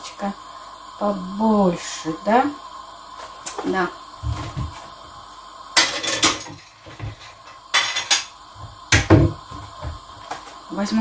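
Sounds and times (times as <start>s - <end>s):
ceramic plates clattering: 5.8s - 6.6s, 7.8s - 8.3s.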